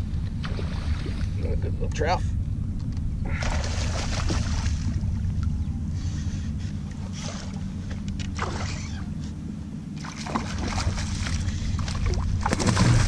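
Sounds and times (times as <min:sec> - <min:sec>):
water sloshing against kayak hull: 0:10.0 - 0:13.0.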